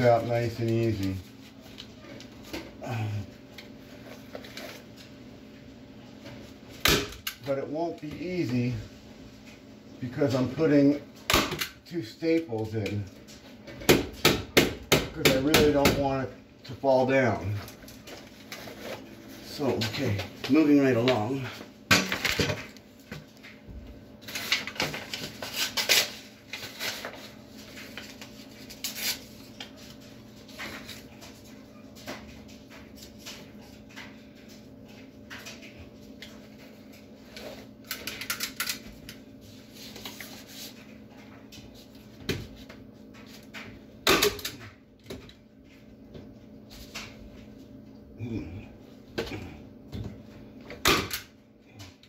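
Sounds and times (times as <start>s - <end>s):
paper and plastic crinkling: 0.0s - 5.2s, 17.3s - 23.6s, 24.2s - 43.6s.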